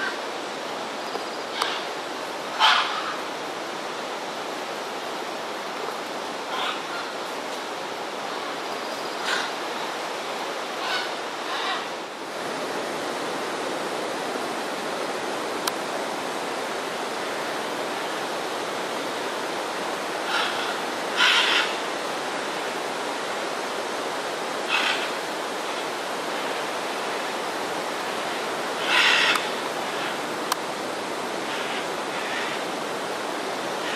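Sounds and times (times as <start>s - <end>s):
macaws squawking: 20.3s - 21.8s, 28.8s - 30.2s.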